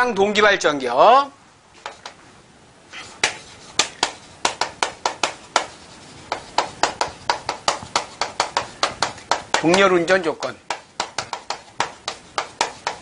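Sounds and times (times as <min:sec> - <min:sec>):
chalk tapping on chalkboard: 0:01.8 - 0:02.2, 0:03.1 - 0:13.0.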